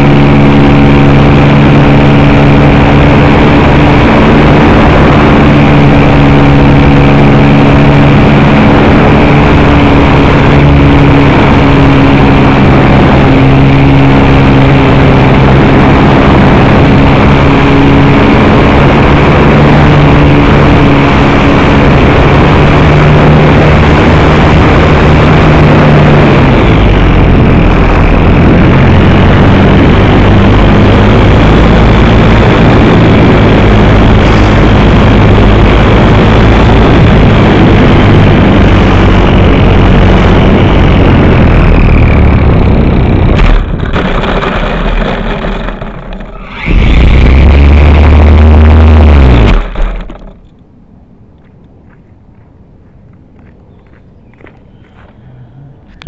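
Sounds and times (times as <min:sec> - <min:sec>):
model airplane motor and propeller: 0:21.6 - 0:50.6.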